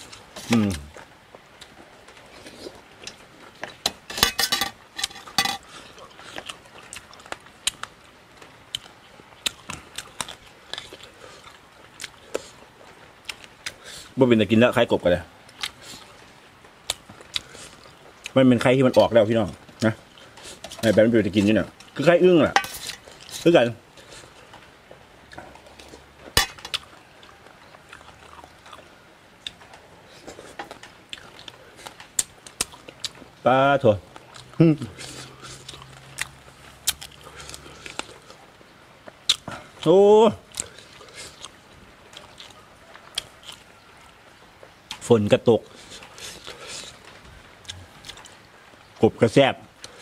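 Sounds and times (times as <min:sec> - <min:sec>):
person chewing and crunching: 0:00.0 - 0:14.2, 0:15.5 - 0:24.6, 0:25.3 - 0:33.3, 0:34.0 - 0:44.2, 0:44.9 - 0:48.5
metal spoon clinking on tray: 0:04.1 - 0:05.6.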